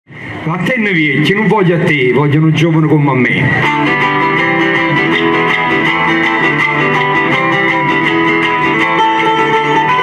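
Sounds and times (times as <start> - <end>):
acoustic guitar strumming: 3.5 - 10.0.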